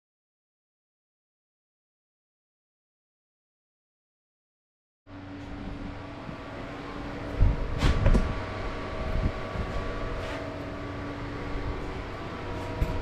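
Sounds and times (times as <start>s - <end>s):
low electrical hum: 5.1s - 13.0s.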